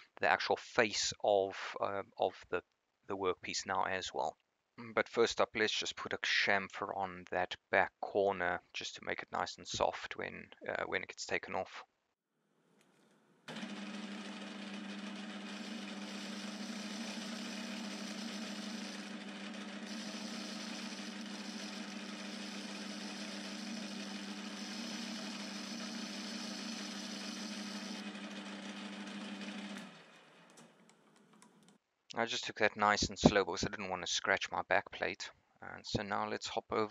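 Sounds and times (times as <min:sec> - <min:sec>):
metal lathe motor hum: 0:13.5 - 0:30.6
hiss of lathe cutting: 0:19.8 - 0:28.0.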